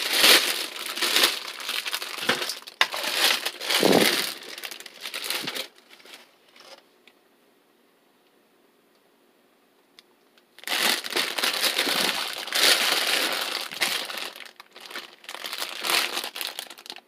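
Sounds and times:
plastic bag crinkling: 0.0 - 6.8, 10.6 - 17.0.

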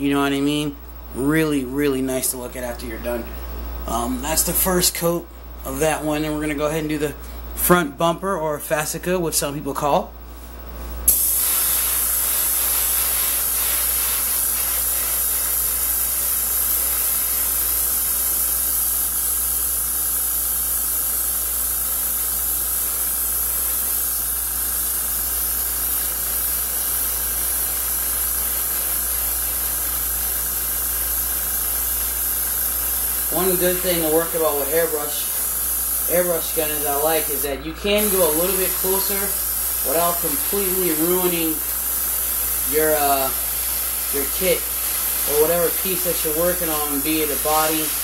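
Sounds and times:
airbrush spraying hiss: 11.1 - 48.0.

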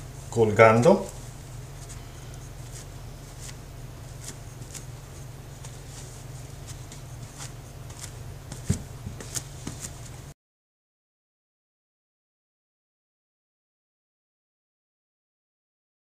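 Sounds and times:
steady low hum: 0.0 - 10.4
sponge dabbing wet compound: 0.1 - 10.3.

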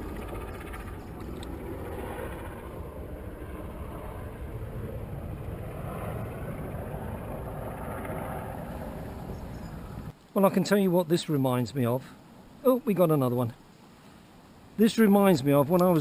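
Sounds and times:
low rumbling wind noise: 0.0 - 10.1.

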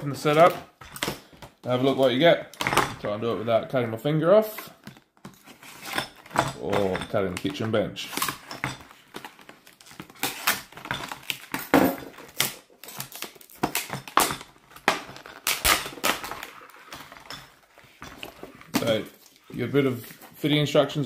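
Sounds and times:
packaging rustling: 4.5 - 20.6
plastic packaging crackling: 5.7 - 20.5.

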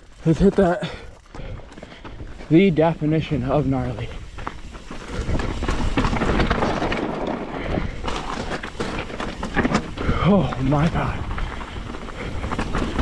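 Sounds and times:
bike rattling and knocking: 0.0 - 13.0
tyres crunching over gravel: 0.0 - 13.0.

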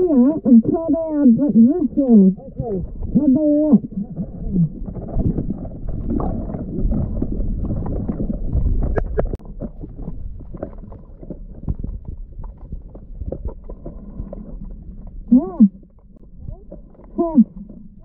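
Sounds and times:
underwater water rushing: 0.0 - 18.0
crackling clicks: 7.6 - 9.4.

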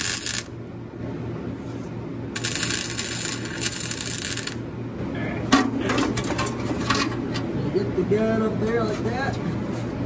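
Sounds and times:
welding arc crackling: 0.0 - 0.6, 2.4 - 4.7
low steady hum: 0.0 - 10.0.

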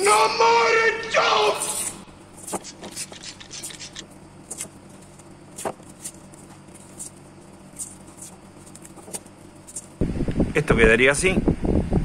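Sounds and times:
steady low hum: 0.0 - 12.0
tape wrapping rustle and clicks: 2.4 - 10.0.

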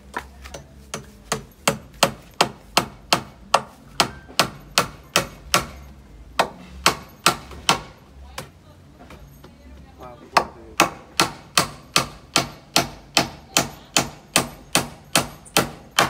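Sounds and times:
hammer driving nails into wood: 10.4 - 16.0.

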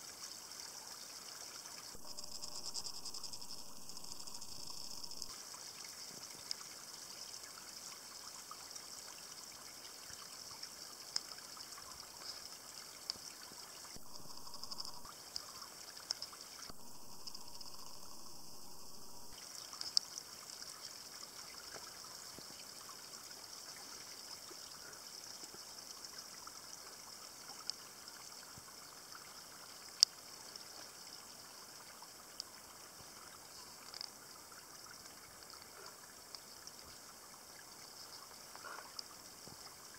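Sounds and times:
water trickling over rocks: 0.0 - 39.9.

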